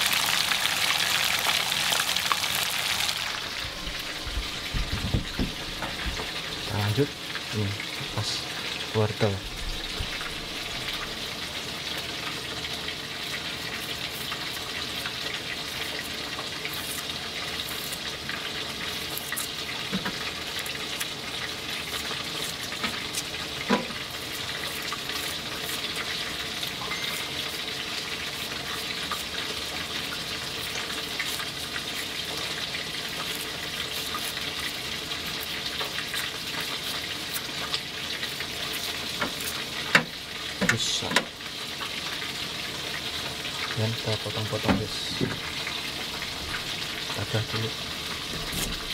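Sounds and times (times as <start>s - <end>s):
fish sizzling in a pan: 0.0s - 48.9s
knife peeling carrot: 13.6s - 40.0s, 48.3s - 48.9s.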